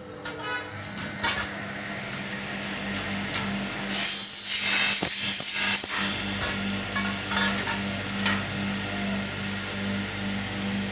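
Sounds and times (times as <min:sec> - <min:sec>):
metal scraping on metal: 0:00.2 - 0:01.6, 0:03.9 - 0:08.5.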